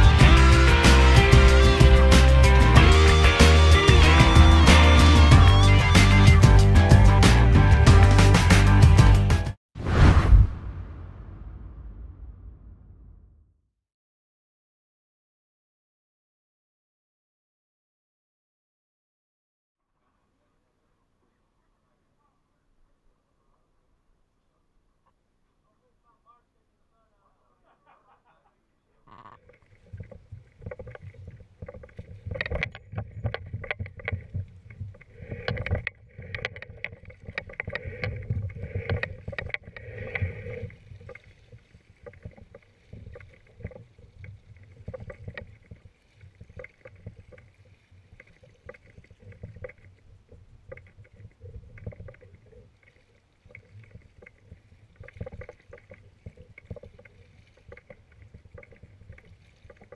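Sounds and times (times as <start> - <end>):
low rumble: 9.8 - 13.6
kayak paddle splashing in water: 29.4 - 59.9.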